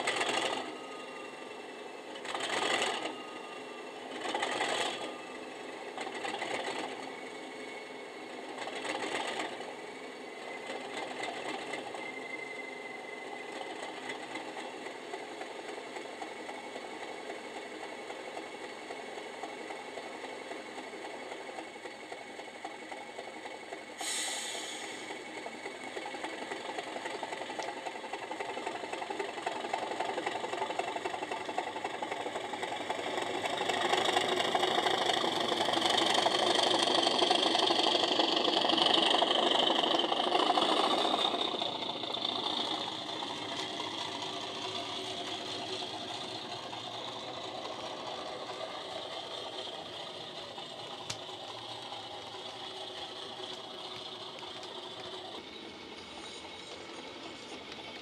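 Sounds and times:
diesel engine sound from small speaker: 0.0s - 58.0s
high whistle: 11.9s - 13.5s
short sudden hiss: 24.0s - 25.1s.

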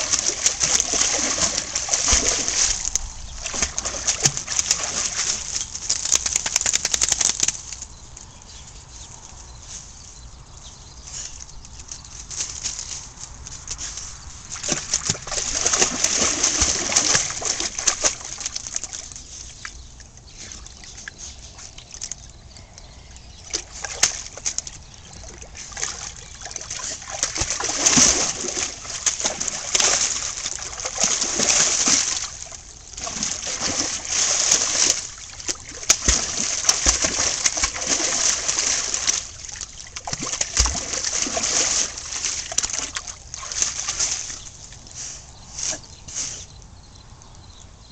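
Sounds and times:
dog splashing in water: 0.0s - 7.6s, 14.5s - 19.3s, 23.5s - 44.8s.

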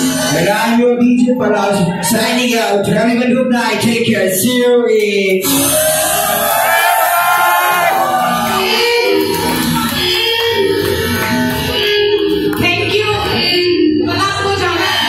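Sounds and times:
dance music with singing: 7.2s - 15.0s.

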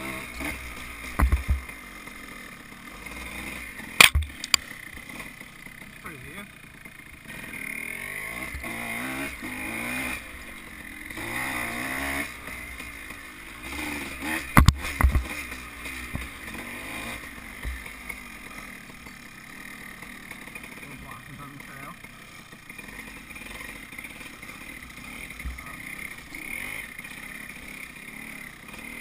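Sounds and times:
dirt bike engine revving: 0.0s - 29.0s
sharp knocks: 1.2s - 1.7s, 4.0s - 4.6s, 14.5s - 15.3s.

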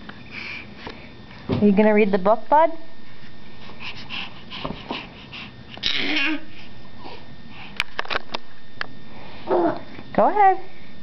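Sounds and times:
baby panting breaths: 3.5s - 7.8s.

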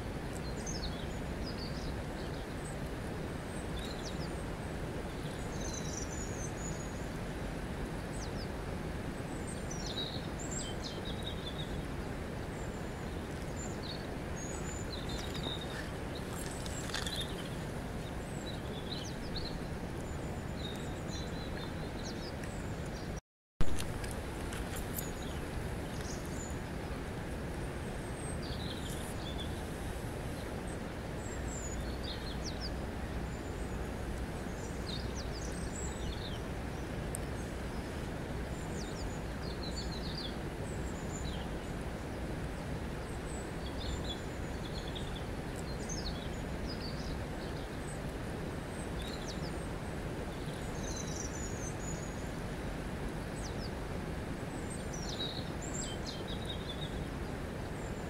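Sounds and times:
river water rushing: 1.1s - 22.9s, 23.6s - 58.0s
birds chirping: 12.5s - 27.0s.

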